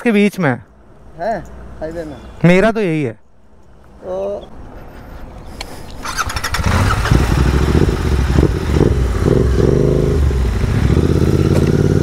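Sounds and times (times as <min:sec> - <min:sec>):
motorcycle engine running: 0:06.2 - 0:12.0.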